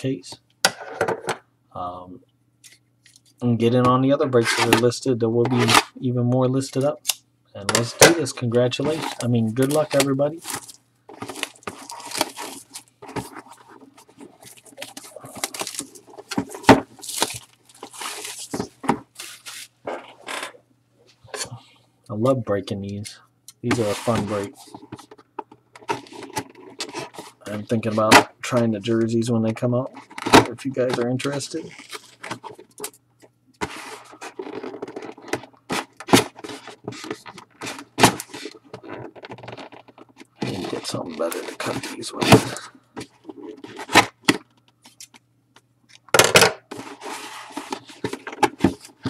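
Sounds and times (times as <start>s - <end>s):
plastic shrink wrap tearing: 8.9s - 12.9s, 17.0s - 18.6s.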